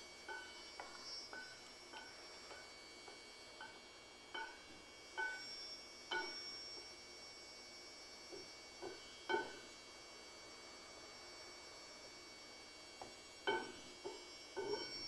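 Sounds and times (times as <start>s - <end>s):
wooden spatula tapping frying pan: 13.5s - 14.9s.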